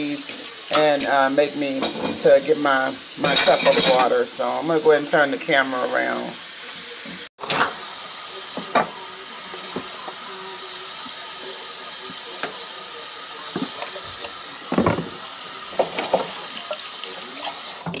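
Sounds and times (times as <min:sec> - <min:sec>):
steady high hiss: 0:00.0 - 0:18.0
water pouring: 0:00.0 - 0:18.0.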